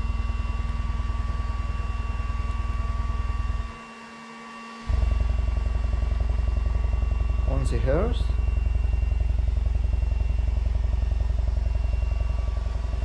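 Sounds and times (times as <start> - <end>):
subwoofer low chop: 4.9 - 13.0.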